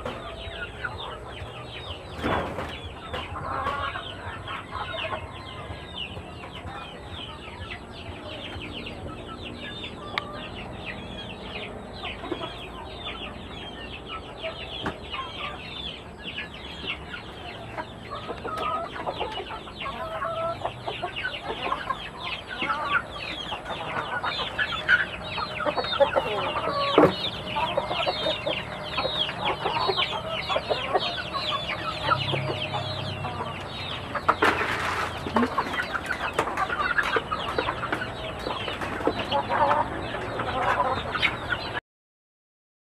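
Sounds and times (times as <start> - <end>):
chickens clucking: 0.0 - 41.8.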